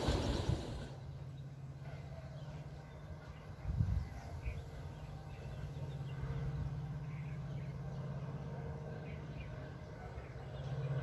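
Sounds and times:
steady low rumble: 0.0s - 1.2s.

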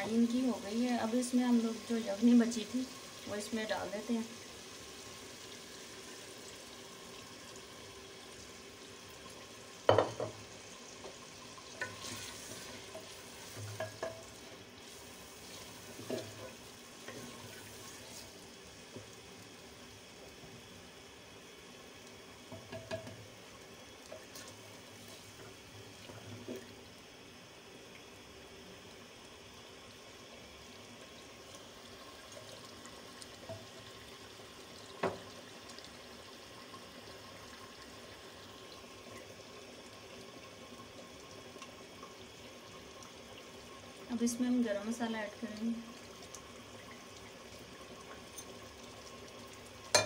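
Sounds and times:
liquid simmering: 0.0s - 50.0s
liquid pouring into pot: 4.3s - 18.5s.

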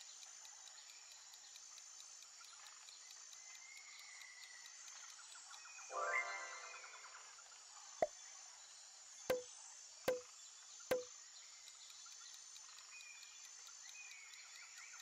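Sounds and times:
countdown timer ticking: 5.9s - 7.0s.

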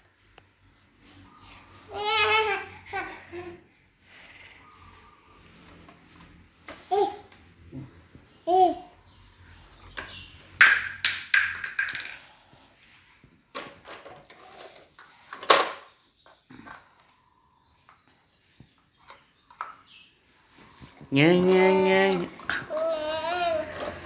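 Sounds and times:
toy truck clattering on tiles: 10.0s - 12.5s, 13.5s - 17.1s.

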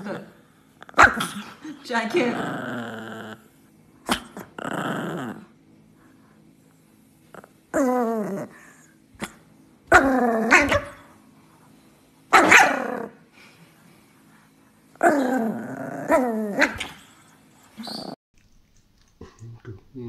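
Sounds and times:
dog growling and barking: 0.0s - 5.6s, 7.3s - 11.2s, 12.3s - 13.2s, 14.9s - 18.2s.

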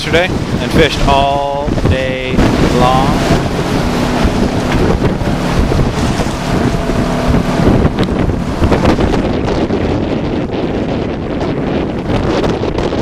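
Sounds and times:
outboard motor droning: 0.0s - 13.0s
rushing water: 0.0s - 13.0s
wind noise on microphone: 0.0s - 13.0s.

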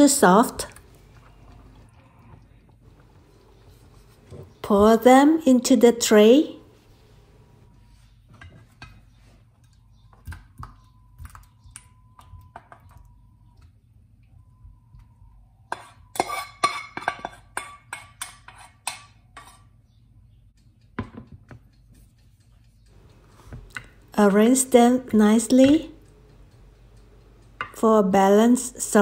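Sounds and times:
utensil scraping and clinking on pan: 15.7s - 19.8s.

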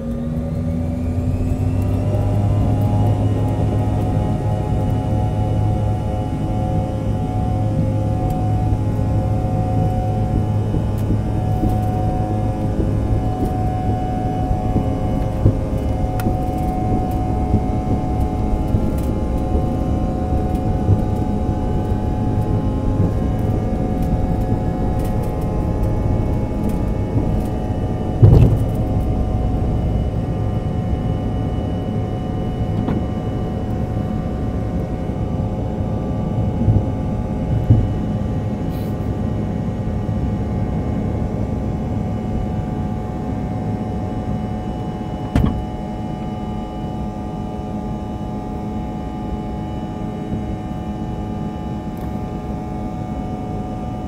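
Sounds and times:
jet engines rumble and whine: 0.0s - 54.0s
loud thump: 45.3s - 45.7s.

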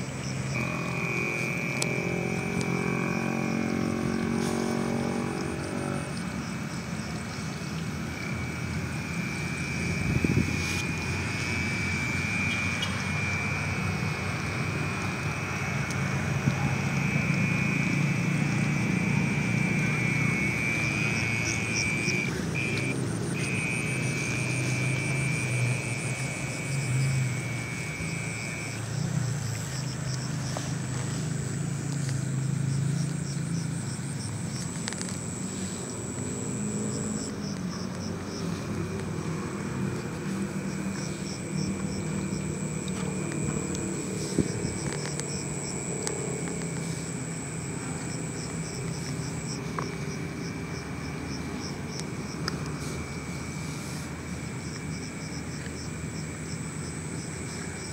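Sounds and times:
faint pulsing insect chirp: 0.0s - 57.9s
insect high-pitched trill: 0.0s - 57.9s.

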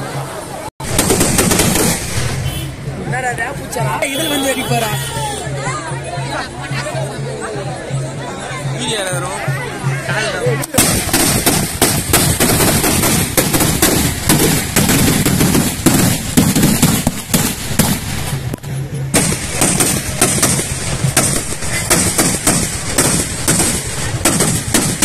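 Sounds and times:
firecrackers banging and crackling: 0.8s - 5.0s, 10.6s - 25.0s.

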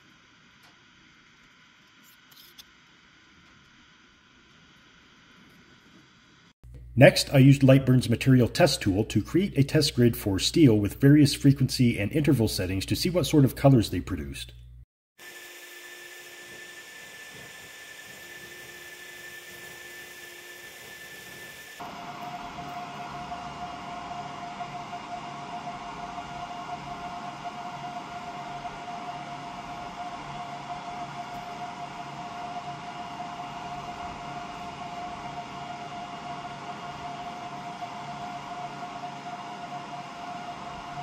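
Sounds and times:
fan whirring: 16.1s - 41.0s.

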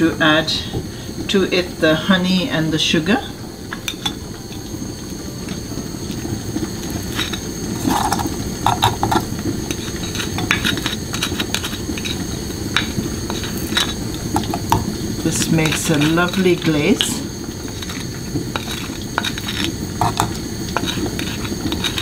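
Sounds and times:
wooden spoon scraping saucer: 6.9s - 17.1s, 17.7s - 22.0s.

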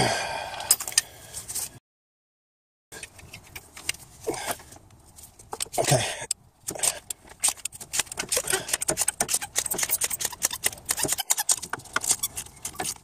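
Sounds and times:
ratchet wrench clicking: 6.8s - 13.0s.

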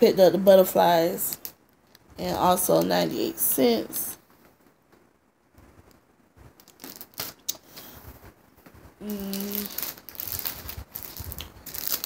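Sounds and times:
plastic packaging crinkling: 1.2s - 2.1s, 6.6s - 7.9s, 9.0s - 12.0s
person humming: 9.0s - 9.8s.

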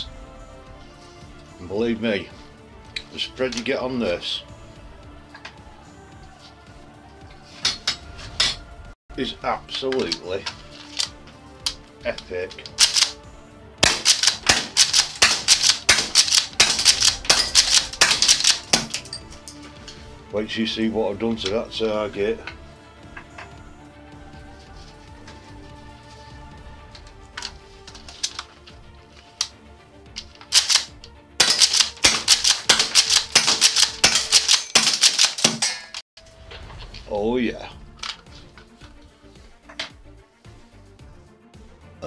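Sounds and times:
background music: 0.0s - 42.0s
airsoft shotgun pops: 13.8s - 19.0s
pump action clacking: 13.8s - 19.1s, 30.2s - 36.0s.

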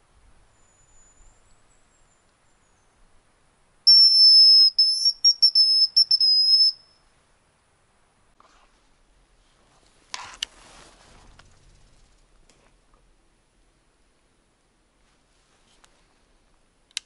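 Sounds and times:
bird decoy whistle: 3.9s - 6.9s.

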